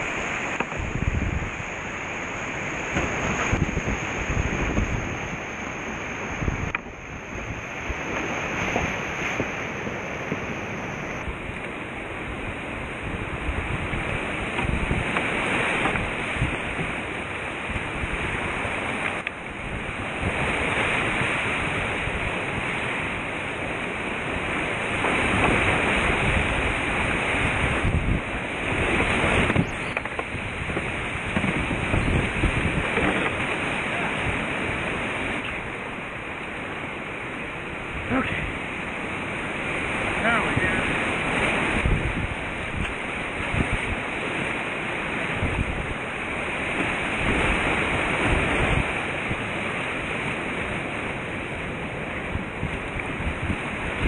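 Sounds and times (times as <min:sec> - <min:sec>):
whitewater rushing and splashing: 0:00.0 - 0:54.0.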